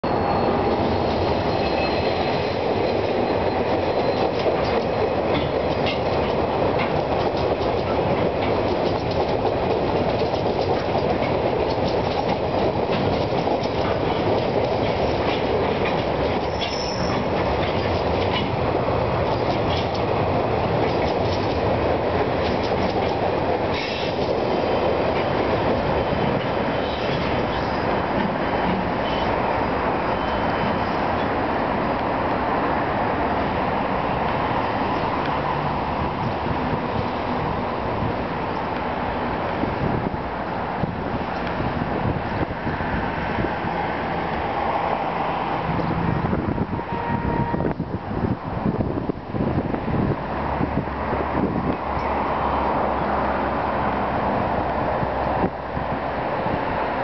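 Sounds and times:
high wheel squeal: 0.0s - 4.4s, 16.4s - 18.5s, 25.8s - 31.3s
freight train rumbling past: 0.0s - 57.0s
wheels clicking over rail joints: 2.6s - 29.4s.

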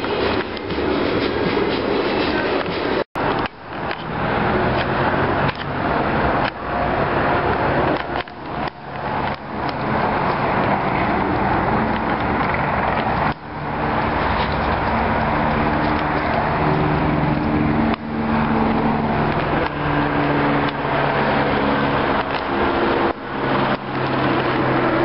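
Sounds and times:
helicopter rotor and engine: 8.0s - 25.0s.

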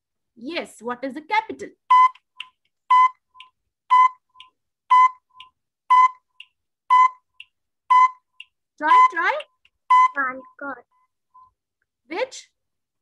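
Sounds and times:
timer beeping: 1.9s - 11.6s.

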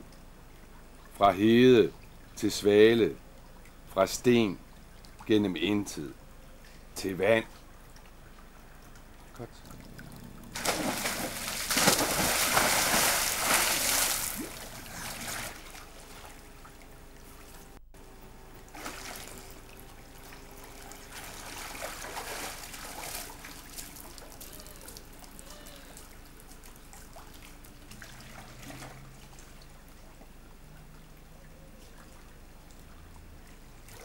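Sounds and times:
swimmer splashing and lapping: 6.0s - 34.0s
bodies splashing into pool: 10.5s - 16.8s, 18.7s - 25.2s.

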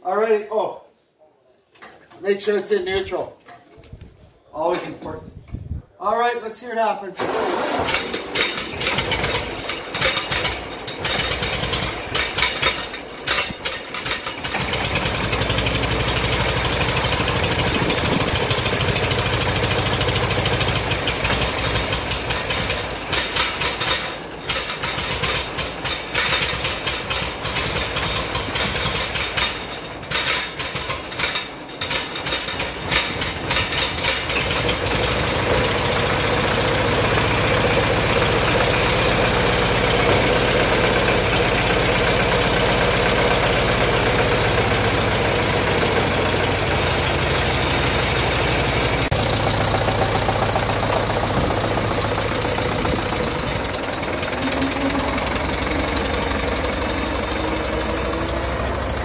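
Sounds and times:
tractor engine starting and running: 7.2s - 59.0s.

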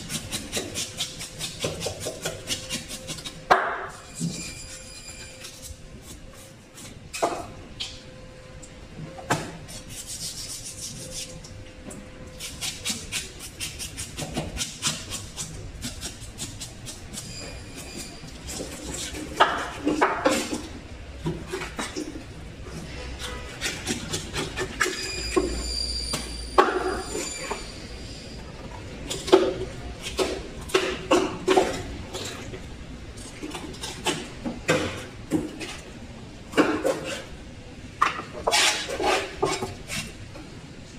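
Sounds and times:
knife sawing through fish: 9.8s - 11.3s.

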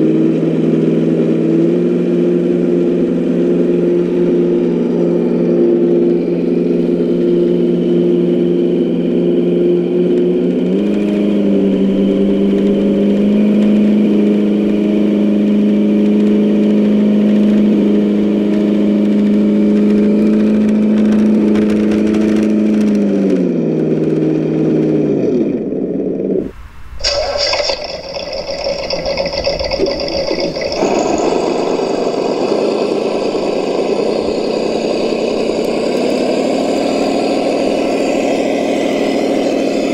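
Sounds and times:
rc truck motor whining: 30.6s - 39.9s.

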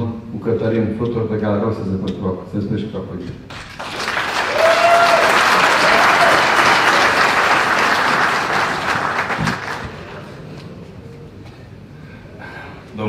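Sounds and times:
audience applauding: 3.5s - 10.6s.

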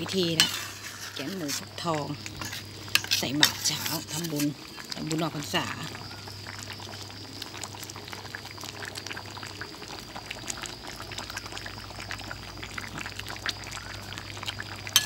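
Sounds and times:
metal ladle stirring: 0.0s - 1.8s, 2.4s - 4.5s
curry bubbling in pot: 0.0s - 15.0s.

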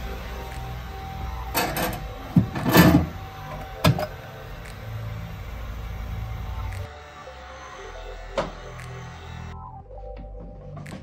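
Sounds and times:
metal door and rack clattering: 1.5s - 3.1s.

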